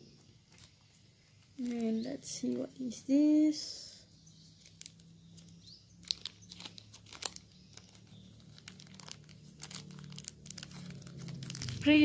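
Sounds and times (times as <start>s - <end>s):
plastic bag crinkling: 1.4s - 2.5s, 4.5s - 12.0s.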